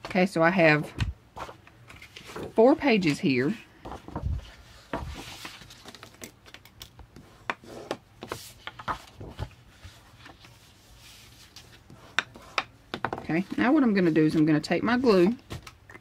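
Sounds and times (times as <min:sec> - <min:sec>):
paper rustling: 0:03.9 - 0:06.2, 0:08.3 - 0:11.9.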